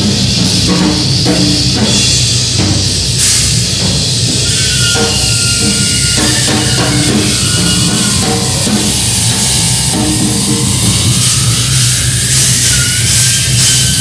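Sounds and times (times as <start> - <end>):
dense wash of noise music: 0.0 - 14.0.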